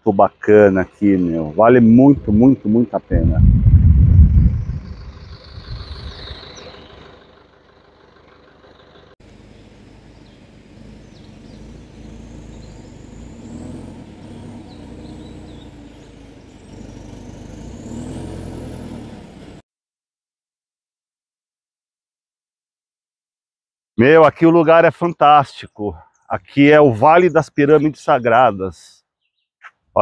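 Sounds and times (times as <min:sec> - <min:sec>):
truck engine running slowly: 0:00.3 - 0:19.6
faint bird chirps: 0:04.5 - 0:07.4, 0:08.8 - 0:17.8.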